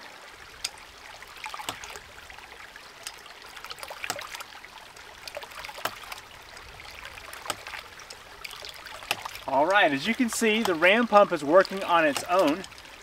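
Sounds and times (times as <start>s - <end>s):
creek water trickling: 0.0s - 13.0s
pump valve knocking: 10.3s - 11.0s.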